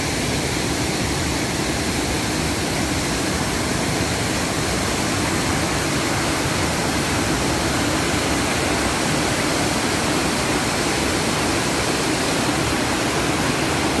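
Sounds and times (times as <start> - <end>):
waterfall rushing: 0.0 - 14.0.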